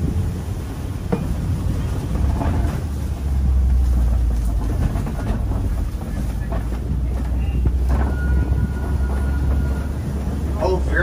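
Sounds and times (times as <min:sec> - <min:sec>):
truck engine rumbling: 0:00.0 - 0:11.0.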